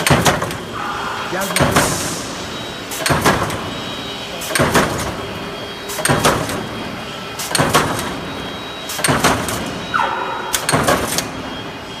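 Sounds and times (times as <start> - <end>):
power press clanking: 9.0 - 11.3.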